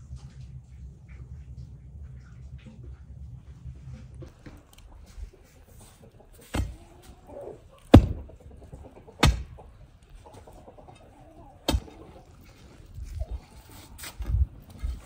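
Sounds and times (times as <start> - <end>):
iron bar thudding into ground: 7.9 - 8.3.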